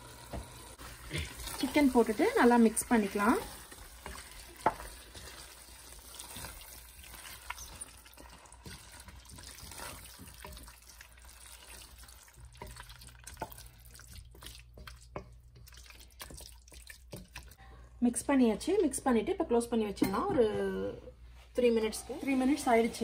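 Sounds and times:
spatula stirring wet sauce: 0.2s - 17.6s.

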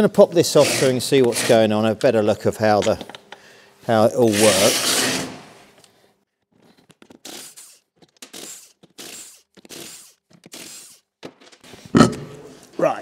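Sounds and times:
impact wrench bursts: 7.1s - 11.1s.

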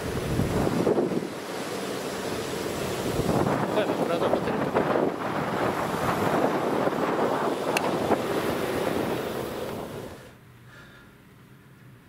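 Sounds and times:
wind on the microphone: 0.0s - 1.6s, 2.5s - 10.3s
passing traffic: 0.0s - 12.0s.

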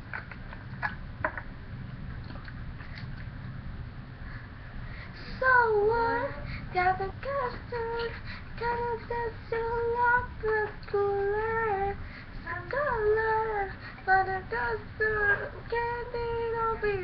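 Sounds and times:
girl singing: 5.2s - 17.0s.

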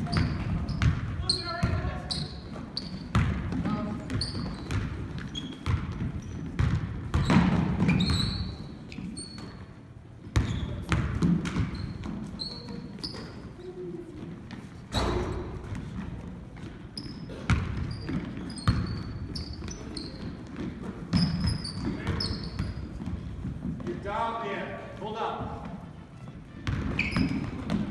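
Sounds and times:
basketball bouncing on hardwood floor: 0.0s - 2.0s, 3.0s - 8.5s, 10.3s - 12.8s, 26.6s - 27.9s
sneakers squeaking: 0.0s - 24.1s, 25.3s - 27.9s.

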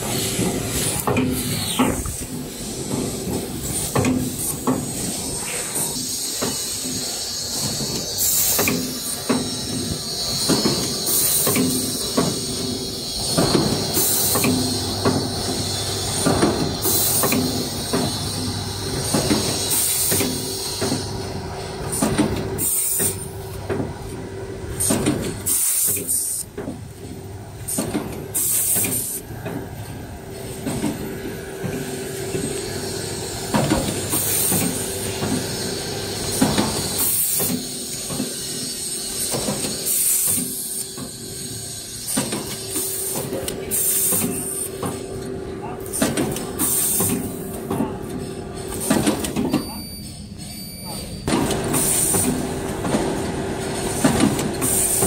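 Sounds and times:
compressed air hisses: 0.0s - 18.6s, 22.6s - 23.2s, 24.8s - 26.4s, 32.5s - 44.8s, 46.6s - 47.4s, 54.6s - 55.0s
steady machine hum: 0.0s - 25.5s, 29.1s - 39.8s
packing machine clacking and knocking: 6.5s - 18.2s, 19.0s - 21.1s, 21.8s - 24.0s, 33.5s - 35.5s, 36.3s - 38.4s, 39.2s - 41.2s, 42.1s - 45.1s, 45.9s - 49.8s, 51.2s - 55.0s.

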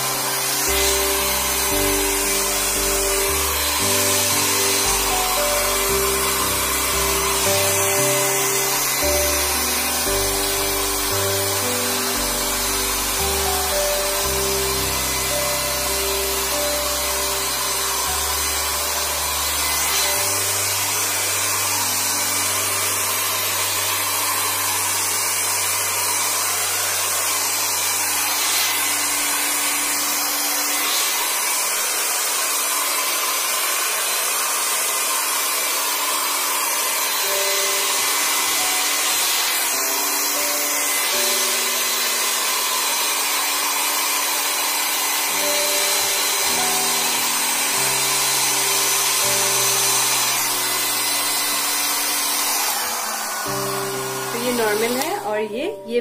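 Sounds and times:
soft background music: 0.0s - 32.8s, 35.9s - 56.0s
hair dryer running: 0.0s - 56.0s.

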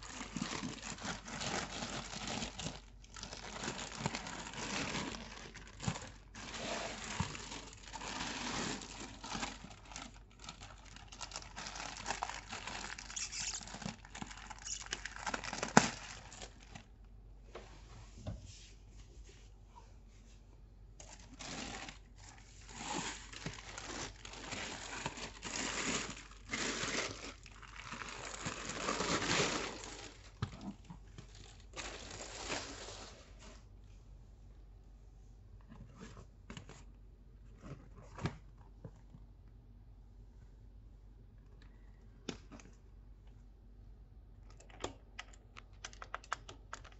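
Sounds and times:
plastic bag crinkling: 0.0s - 17.0s, 21.0s - 33.6s.

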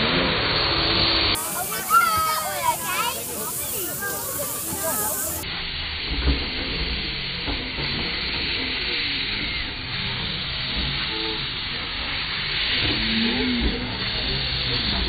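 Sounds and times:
steam locomotive hissing: 0.4s - 15.0s.

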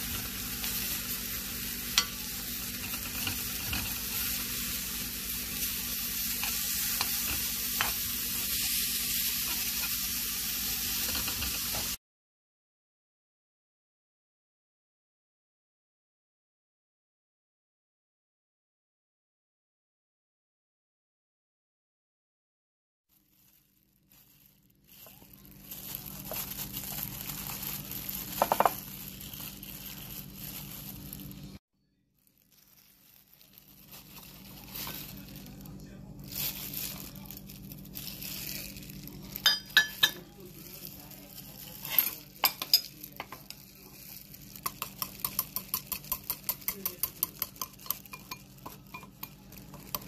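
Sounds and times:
plastic glove crinkling: 0.0s - 12.0s, 23.1s - 50.0s
utensil beating batter in bowl: 25.0s - 31.5s, 38.7s - 50.0s.

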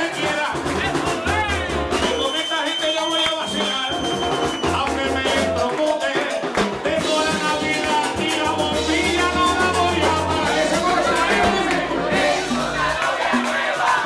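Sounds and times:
hand drums: 0.0s - 2.3s, 3.4s - 14.0s
shaken percussion: 0.0s - 14.0s
man singing into a microphone: 2.2s - 11.8s.

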